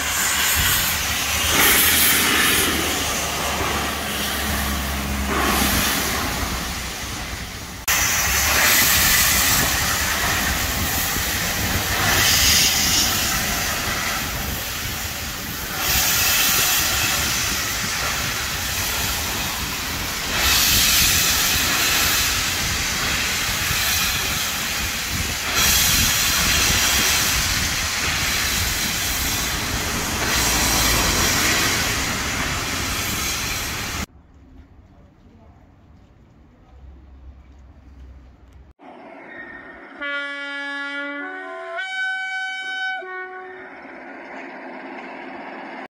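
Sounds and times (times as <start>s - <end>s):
steam locomotive hissing steam: 0.0s - 34.1s.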